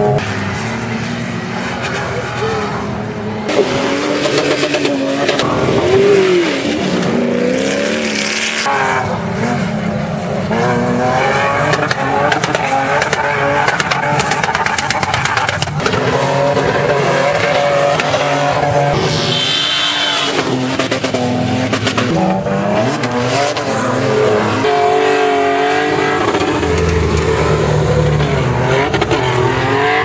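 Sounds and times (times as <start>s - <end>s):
off-road engines revving: 0.0s - 30.0s.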